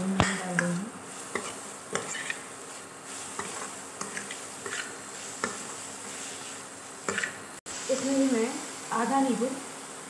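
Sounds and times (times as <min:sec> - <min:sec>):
faint sizzle: 0:00.0 - 0:10.0
spoon scraping frying pan: 0:00.2 - 0:07.5.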